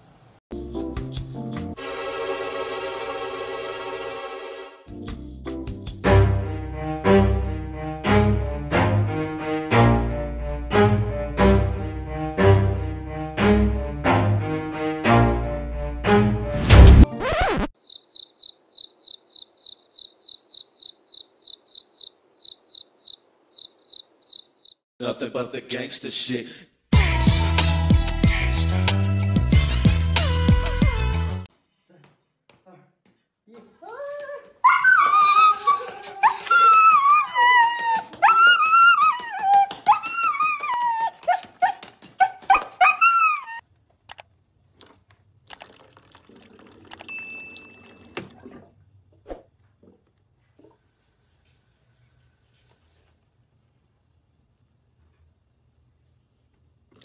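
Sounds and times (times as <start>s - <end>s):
cricket chirping: 17.8s - 24.8s
dog whining and yowling: 34.6s - 43.6s.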